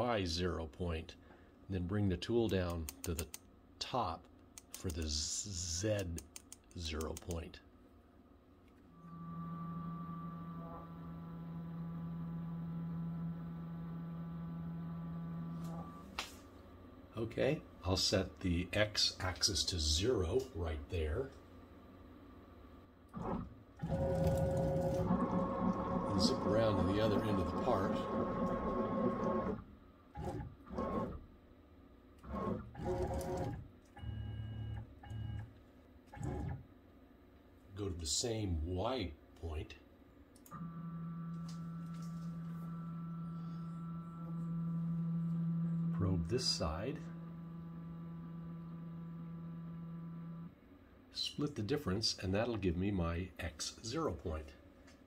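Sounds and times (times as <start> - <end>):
stepper motors humming: 23.2 - 29.6.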